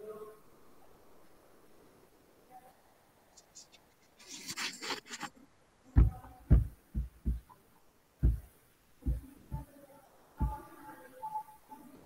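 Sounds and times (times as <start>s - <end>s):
dull low thumps: 6.0s - 7.5s, 8.2s - 9.7s, 10.4s - 10.7s.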